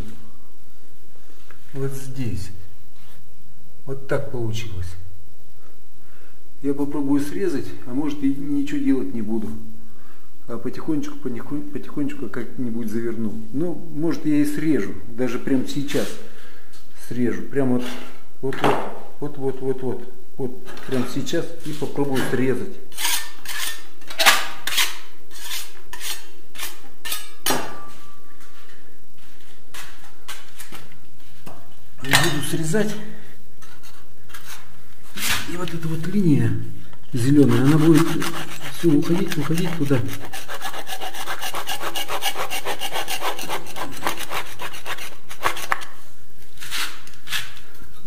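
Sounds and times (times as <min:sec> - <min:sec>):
putty knives scraping together: 0:37.4 - 0:45.9.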